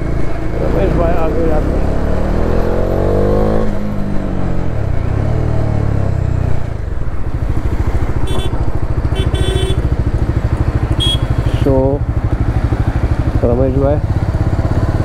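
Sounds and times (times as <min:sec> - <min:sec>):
motorcycle engine revving: 0:00.0 - 0:15.0
motorcycle idling: 0:06.7 - 0:15.0.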